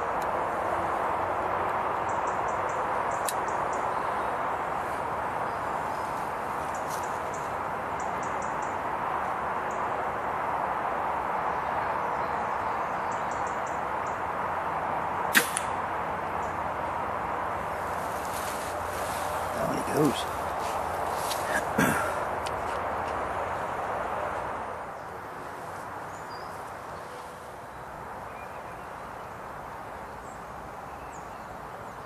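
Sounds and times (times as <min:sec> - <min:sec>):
background hiss: 0:00.0 - 0:32.0
air rifle shot: 0:15.3 - 0:15.8.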